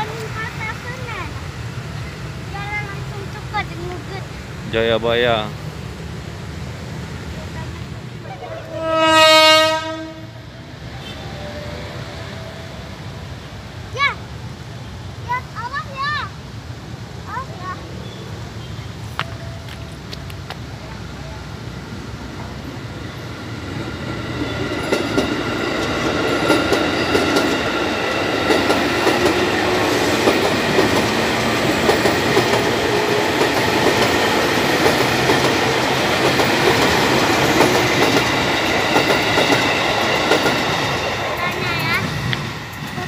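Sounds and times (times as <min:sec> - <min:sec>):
electric train passing: 0:00.0 - 0:43.0
steady high tone: 0:08.2 - 0:13.9
wheels clacking over rail joints: 0:19.2 - 0:43.0.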